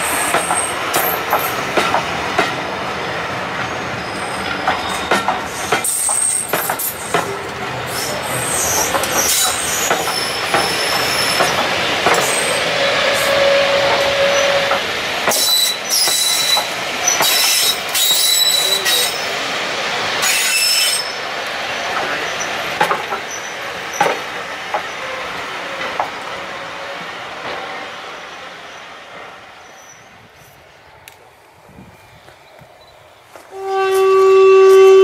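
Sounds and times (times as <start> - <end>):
steel wheels rumbling on rail: 0.0 - 35.0
clacks over rail joints: 0.3 - 2.7, 4.4 - 7.8, 8.7 - 12.6, 13.8 - 19.1, 21.4 - 26.4.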